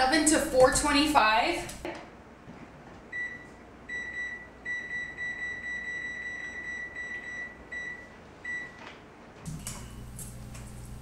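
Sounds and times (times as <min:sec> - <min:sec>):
oven control panel beeps: 0:03.1 - 0:08.8, 0:09.5 - 0:11.0.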